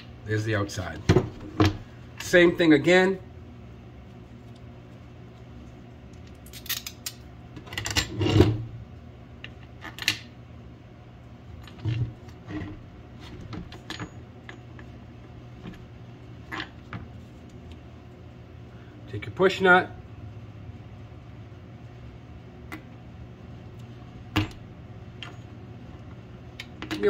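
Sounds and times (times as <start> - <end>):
metal bolts and washers clinking: 6.4 - 8.5, 13.5 - 14.9.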